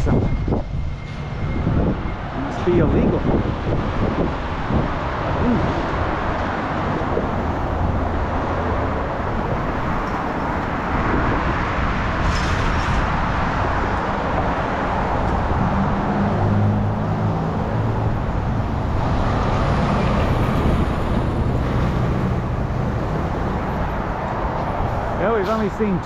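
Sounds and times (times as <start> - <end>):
truck engine hum: 0.0 - 12.1
road traffic passing: 0.0 - 26.0.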